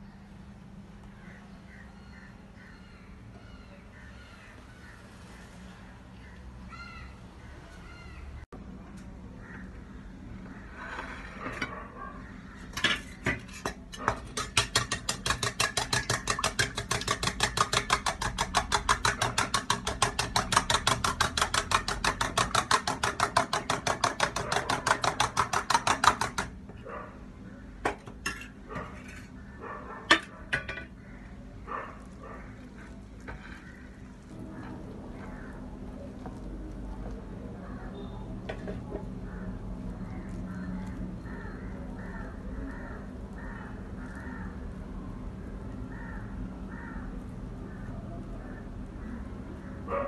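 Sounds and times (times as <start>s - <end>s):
whisk clicking in metal bowl: 14.3s - 26.5s.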